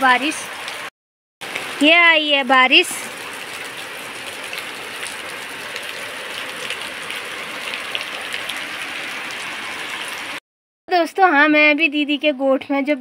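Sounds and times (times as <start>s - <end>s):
heavy rain: 0.0s - 10.4s
water drips and splashes: 0.0s - 10.4s.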